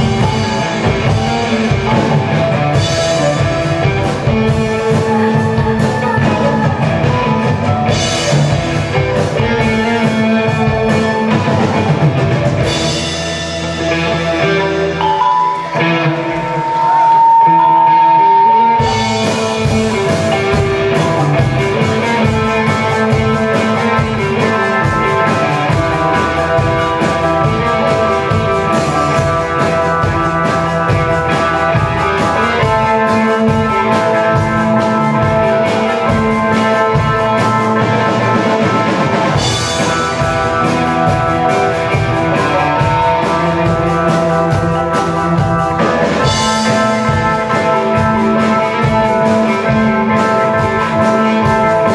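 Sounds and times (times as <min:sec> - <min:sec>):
live band rock music: 0:00.0 - 0:51.9
held high note: 0:15.0 - 0:19.2.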